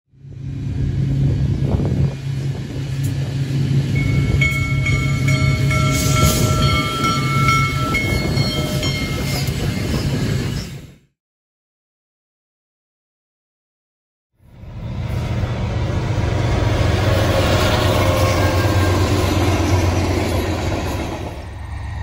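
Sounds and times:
diesel locomotive engine rumble: 0.1s - 11.0s, 14.4s - 22.0s
steady high tones: 2.3s - 10.8s.

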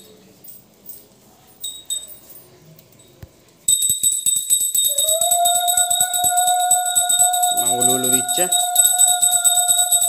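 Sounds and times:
hand bell rung rapidly: 3.7s - 10.0s
woman ululating: 4.9s - 10.0s.

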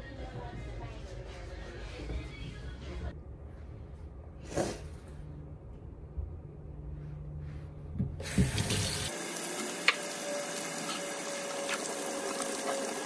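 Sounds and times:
water running into metal sink: 8.2s - 13.0s
tap turned on: 9.8s - 10.1s.

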